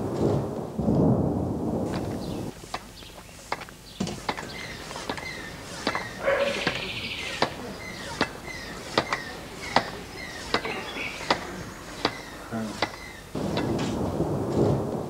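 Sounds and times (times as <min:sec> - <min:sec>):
hand air pump clicking: 0:02.0 - 0:13.7
short rasp: 0:02.5 - 0:13.2.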